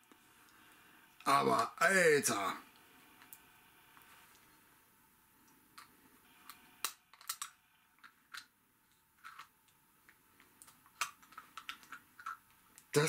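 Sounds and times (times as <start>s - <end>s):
small metal piece clicking: 6.8s - 7.5s.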